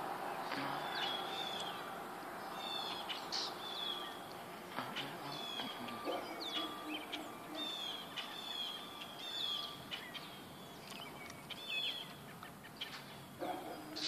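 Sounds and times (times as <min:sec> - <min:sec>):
faint outdoor hiss: 0:00.0 - 0:14.0
songbirds chirping and whistling: 0:00.0 - 0:14.0.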